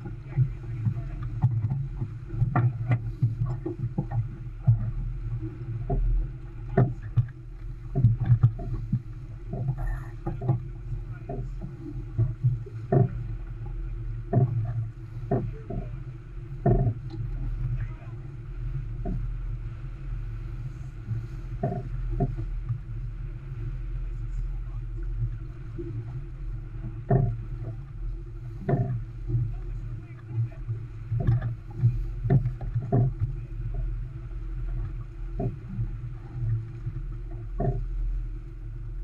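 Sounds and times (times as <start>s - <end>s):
water against sailboat hull: 0.0s - 39.0s
wind: 0.0s - 39.0s.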